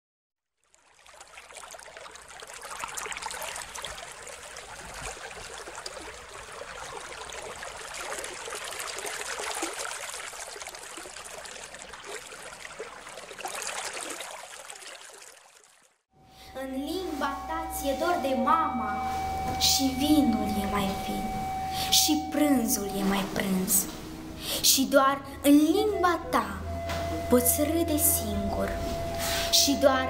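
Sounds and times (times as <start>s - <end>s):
running water splashing: 0.6s - 16.0s.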